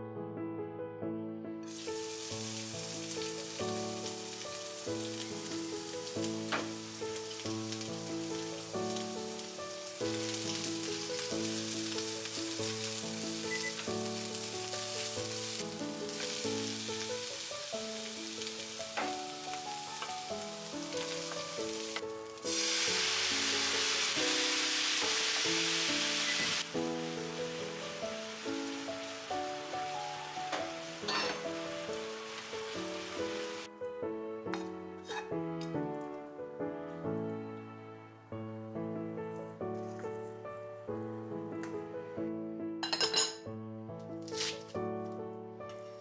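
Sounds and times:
vegetables sizzling in a frying pan: 1.7 - 33.7.

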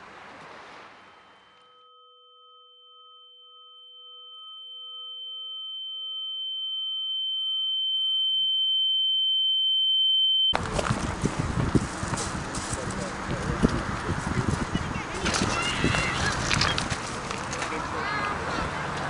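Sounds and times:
high-pitched electronic tone: 1.2 - 10.6.

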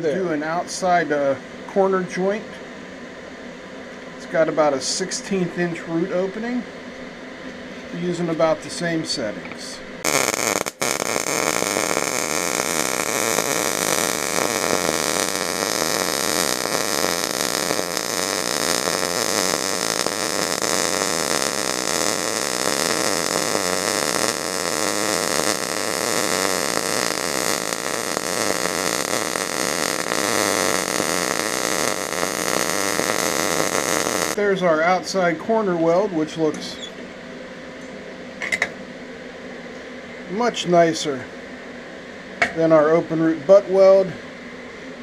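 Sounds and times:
welding arc crackling: 9.1 - 35.2.

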